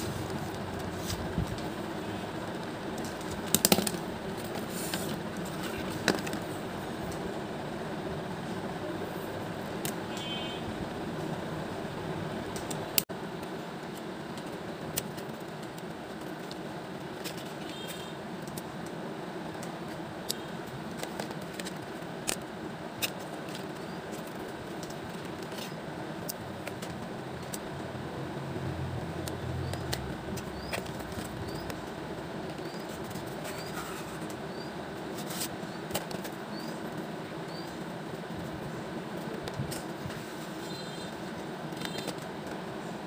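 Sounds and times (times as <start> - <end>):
plastic pens and packaging clicking: 2.6 - 7.2, 12.5 - 27.6, 29.1 - 34.4, 35.1 - 37.0, 41.2 - 42.6.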